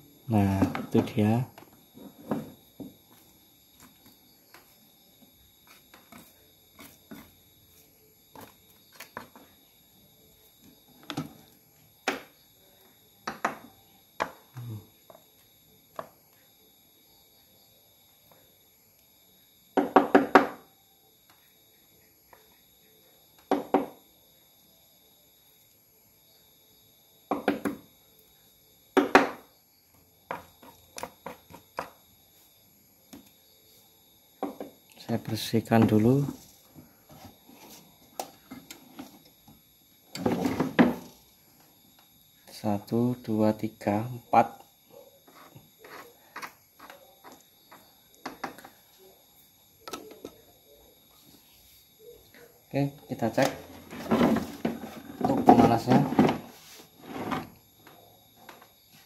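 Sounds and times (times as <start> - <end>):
knocks and scrapes on plastic: 0.6 - 4.7, 30.3 - 32.0, 40.2 - 41.1, 53.5 - 57.6.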